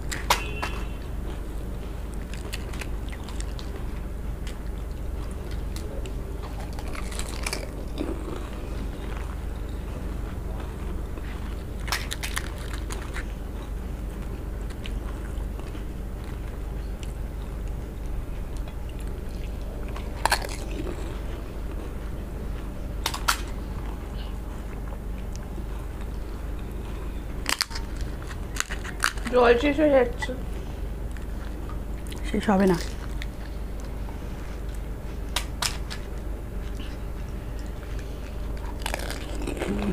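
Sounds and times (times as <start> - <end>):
steady low hum: 0.0 - 39.9
chewing: 0.1 - 29.3, 31.1 - 39.9
crisp shells crunching: 6.5 - 8.0, 11.8 - 13.3, 20.0 - 21.1, 27.4 - 29.3, 38.3 - 39.9.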